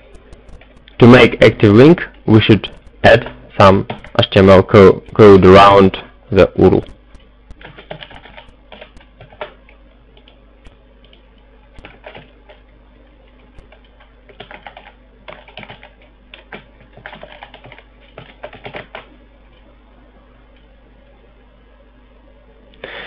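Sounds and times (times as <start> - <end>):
keyboard typing: 0.0 - 1.3, 2.6 - 5.8, 6.6 - 9.6, 11.8 - 12.6, 13.5 - 19.1.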